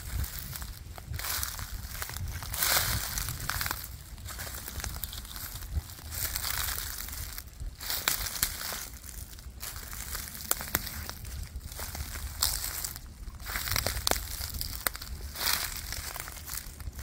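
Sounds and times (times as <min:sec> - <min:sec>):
footsteps crunching dry leaves: 0:00.0 - 0:17.0
twigs cracking underfoot: 0:00.0 - 0:17.0.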